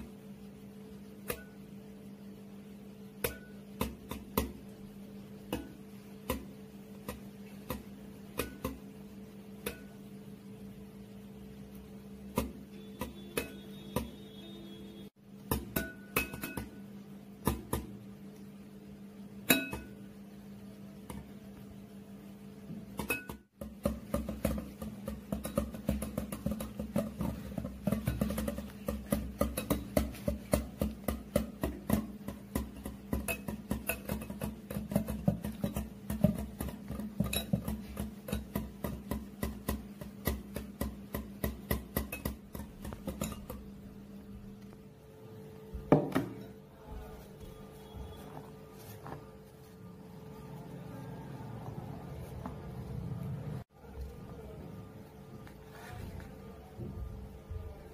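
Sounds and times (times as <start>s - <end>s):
whisk clinking against glass bowl: 24.8s - 39.8s.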